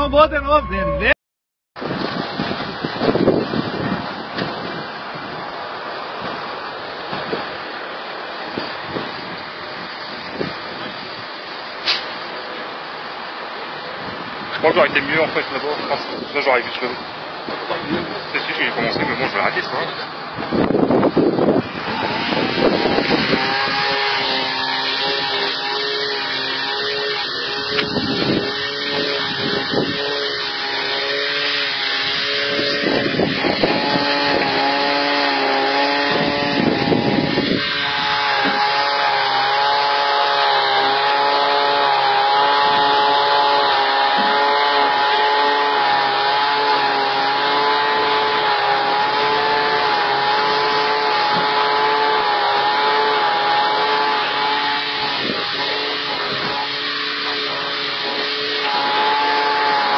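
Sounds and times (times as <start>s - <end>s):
machine drone: 0.0s - 1.2s, 14.7s - 59.9s
air hissing through hoses: 8.6s - 12.4s, 21.6s - 46.1s, 47.4s - 59.9s.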